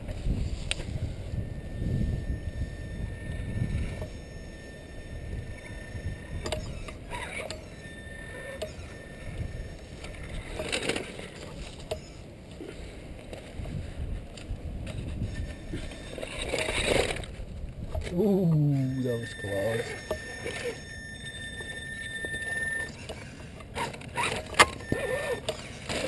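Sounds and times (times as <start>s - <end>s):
wind rumble on microphone: 0.0s - 11.8s, 13.1s - 19.6s
electric motor and gears whirring: 0.0s - 26.0s.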